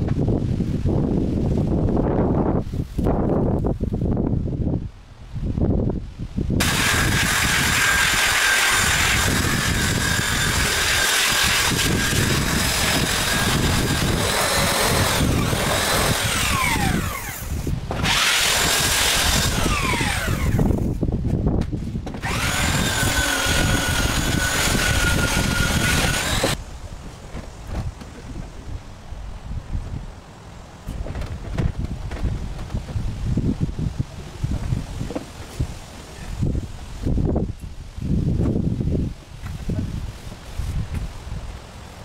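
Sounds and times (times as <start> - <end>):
electric power tool whining: 6.6 - 21.0, 22.1 - 26.6.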